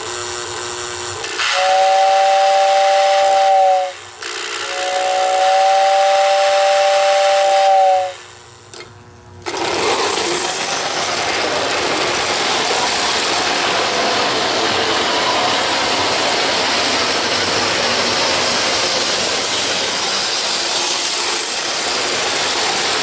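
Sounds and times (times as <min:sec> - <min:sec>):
toy train running on track: 0:00.0 - 0:23.0
toy train whistle: 0:01.2 - 0:08.4, 0:14.8 - 0:16.2.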